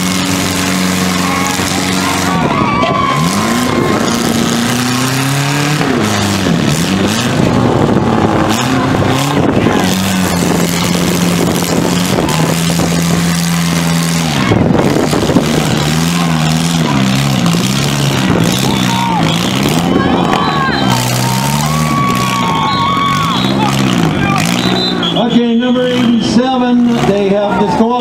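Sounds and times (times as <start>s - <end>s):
car engines revving: 0.0s - 28.0s.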